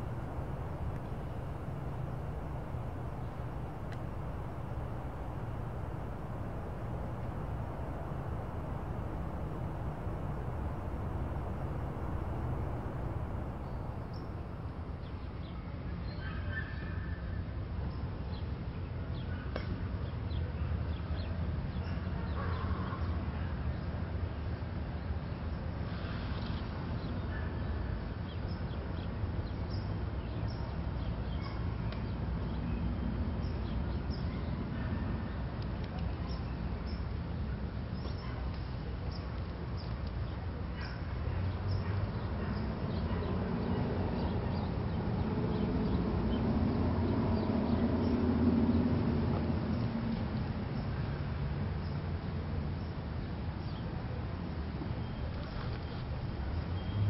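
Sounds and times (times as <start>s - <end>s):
distant traffic rumble: 0.0s - 15.5s
low rumble: 0.0s - 15.5s.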